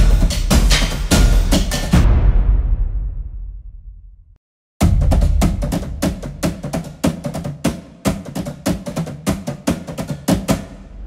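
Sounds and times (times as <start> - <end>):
fast percussion beat: 0.0 - 2.0, 4.8 - 11.0.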